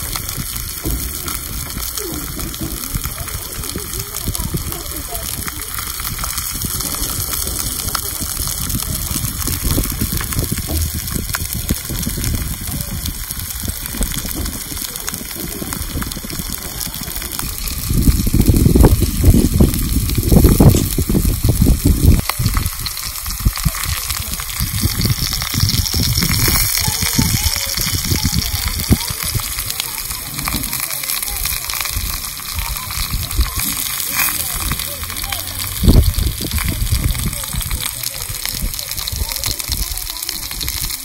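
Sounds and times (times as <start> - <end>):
steaks sizzling on hot stone: 0.0 - 41.0
uneven low rumble: 0.0 - 41.0.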